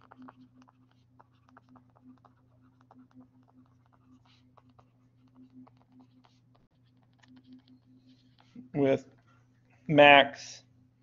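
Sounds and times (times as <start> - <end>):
stylus tapping on tablet screen: 0.0 - 8.5
steady low hum: 0.0 - 11.0.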